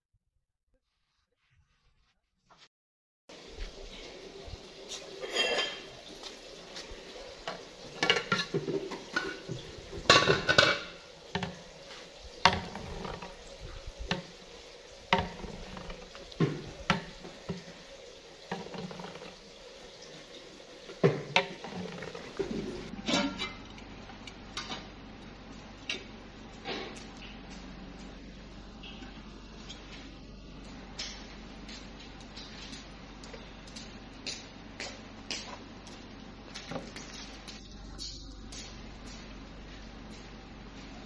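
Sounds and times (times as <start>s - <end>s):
faint steady sizzle: 3.3s - 41.0s
ladle clinking on steel pot: 5.2s - 5.9s.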